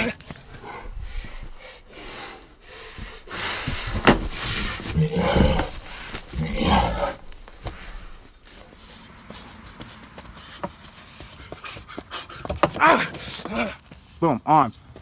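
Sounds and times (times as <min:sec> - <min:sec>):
person breathing hard and grunting: 0:11.4 - 0:13.9.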